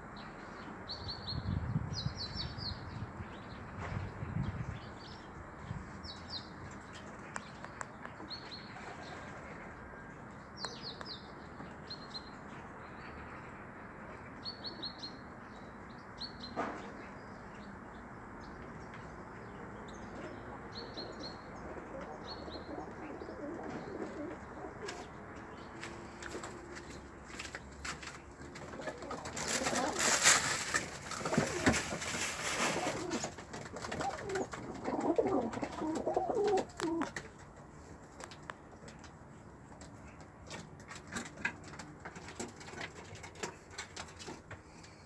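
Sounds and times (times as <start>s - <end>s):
pigeons cooing: 20.2s - 25.2s, 28.5s - 37.4s.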